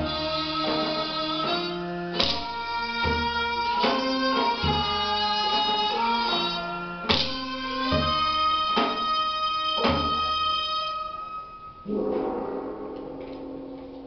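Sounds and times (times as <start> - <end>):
drum strokes: 0.0 - 11.2, 11.8 - 14.0
wind instrument melody: 0.0 - 14.0.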